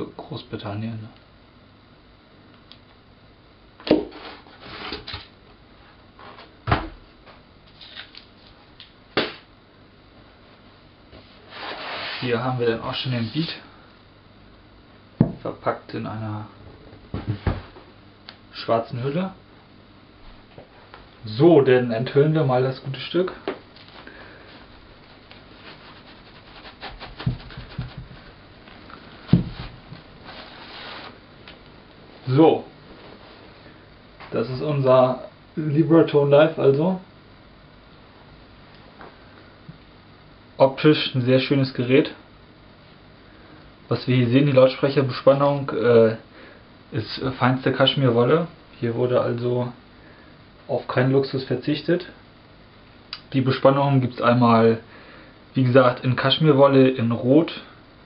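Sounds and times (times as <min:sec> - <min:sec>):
cardboard scraping and rustling: 0:25.4 - 0:28.3, 0:29.2 - 0:31.2
cloth rustling and sliding: 0:29.2 - 0:31.2
soft thumps: 0:29.3 - 0:30.0.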